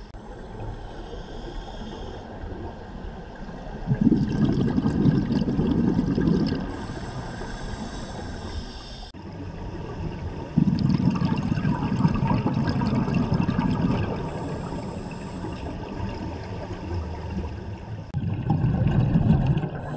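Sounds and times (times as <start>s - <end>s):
underwater breathing: 0.0s - 2.5s, 3.9s - 9.2s, 10.5s - 17.9s, 18.8s - 19.9s
regulator exhaust bubbles underwater: 3.7s - 6.9s, 9.2s - 19.9s.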